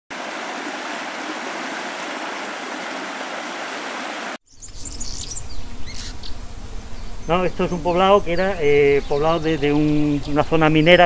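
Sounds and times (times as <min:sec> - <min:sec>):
stream running over rocks: 0:00.1 - 0:04.4.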